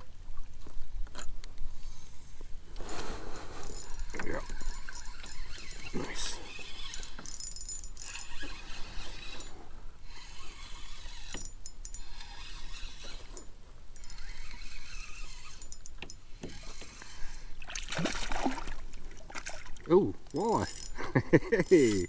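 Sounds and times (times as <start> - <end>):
fishing reel cranking: 2.8 - 17.5, 20.2 - 22.0.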